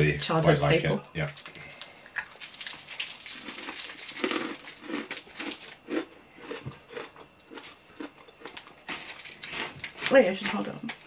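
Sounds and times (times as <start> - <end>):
soft chewing: 1.4 - 10.2
crunching chocolate bar: 2.2 - 11.0.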